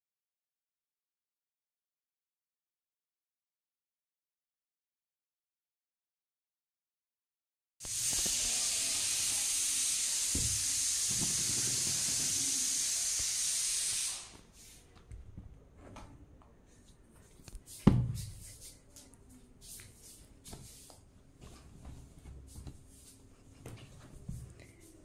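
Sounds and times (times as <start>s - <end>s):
high-pitched hiss: 7.8s - 14.9s
sharp thump: 17.8s - 18.3s.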